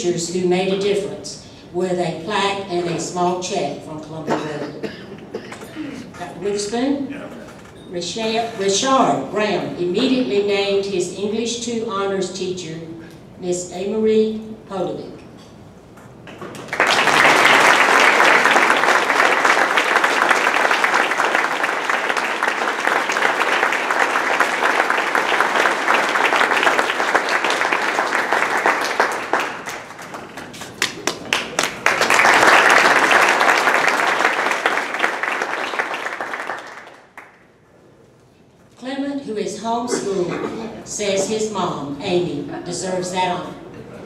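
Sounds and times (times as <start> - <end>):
audience applauding: 16.3 - 37.4.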